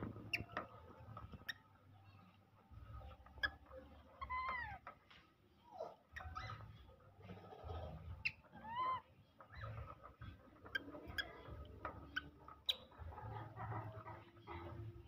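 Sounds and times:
monkeys squealing: 3.3s - 4.9s, 5.6s - 14.9s.

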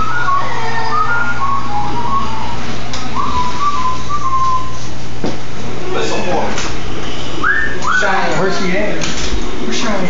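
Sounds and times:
person whistling a tune: 0.0s - 2.6s, 3.2s - 4.9s, 7.4s - 8.1s.

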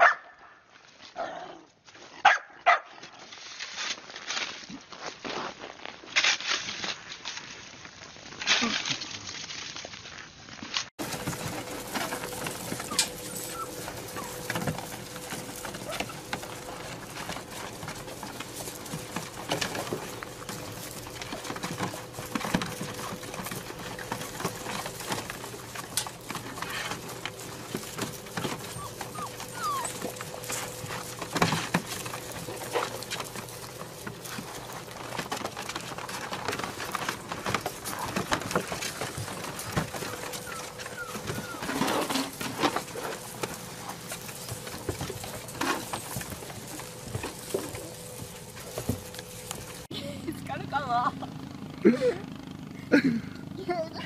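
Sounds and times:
puppies squeaking: 12.0s - 16.9s, 28.2s - 31.3s, 39.3s - 42.4s.

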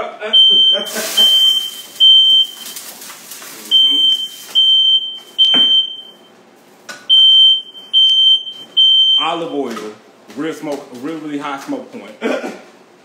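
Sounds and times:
smoke detector beeping: 0.4s - 3.0s, 3.6s - 6.3s, 7.1s - 9.6s.

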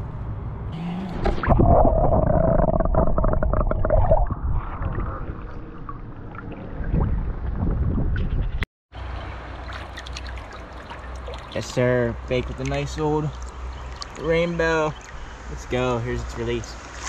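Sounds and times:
underwater rumble and bubbling: 1.2s - 8.6s
water splashing and running: 9.0s - 15.3s.

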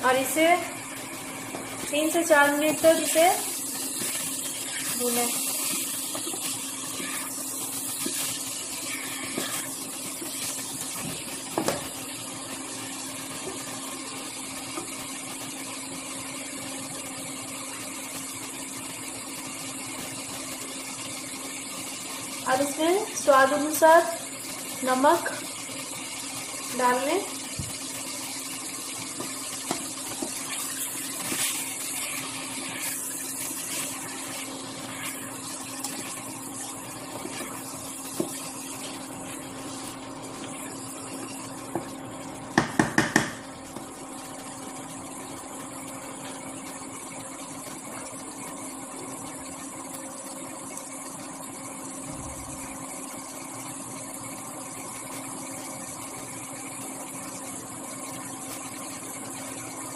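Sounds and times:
food frying in a pan: 0.0s - 59.9s
spoon knocking on pan: 42.6s - 43.5s.

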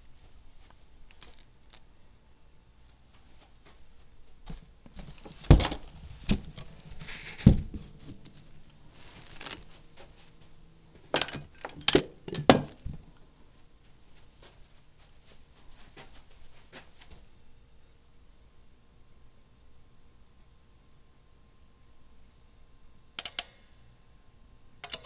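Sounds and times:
handling noise rustling: 0.0s - 1.8s, 2.9s - 17.3s.

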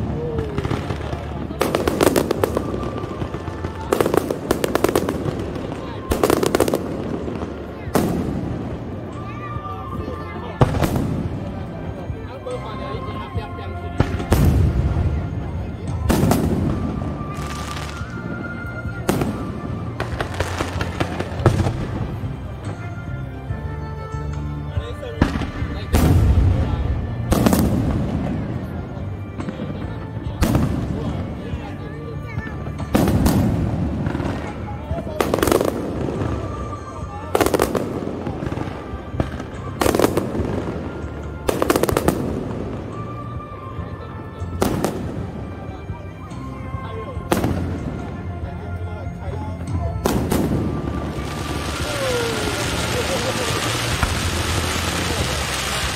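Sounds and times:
firework bangs: 0.0s - 9.5s, 25.2s - 31.6s, 32.6s - 43.2s, 50.0s - 55.9s
crackling firework pops: 50.0s - 55.9s.

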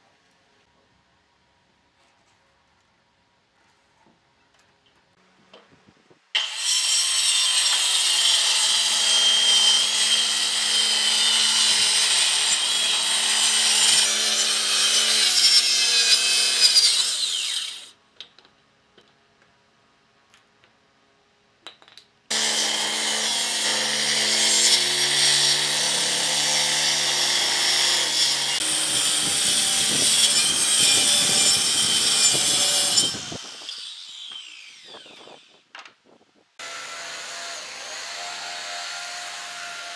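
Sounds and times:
circular saw cutting wood: 6.4s - 18.0s, 22.3s - 35.6s, 36.6s - 39.9s.

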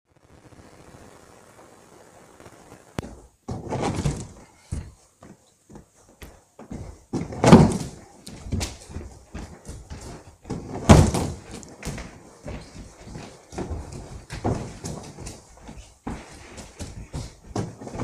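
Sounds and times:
landing thumps on crash mat: 3.0s - 4.9s, 6.7s - 12.1s
running footsteps on gym mats: 3.0s - 18.0s.

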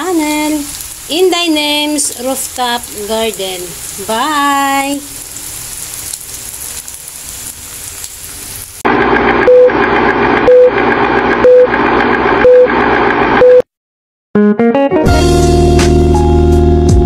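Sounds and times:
food sizzling in a pan: 0.0s - 8.8s
noisy film projector rattle: 8.9s - 13.4s
short beeps: 9.5s - 9.7s, 10.5s - 10.7s, 11.4s - 11.7s, 12.4s - 12.7s, 13.4s - 13.6s.

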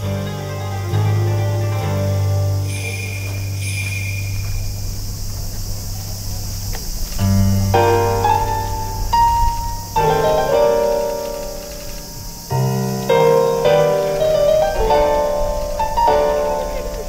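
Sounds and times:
low held tone: 0.0s - 10.8s
sustained piano-like chords: 0.0s - 17.0s.

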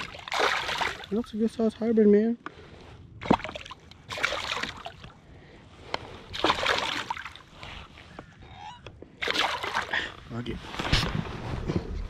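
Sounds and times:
fish splashing in water: 0.0s - 1.2s, 3.2s - 5.0s, 6.3s - 7.5s, 9.2s - 10.0s.

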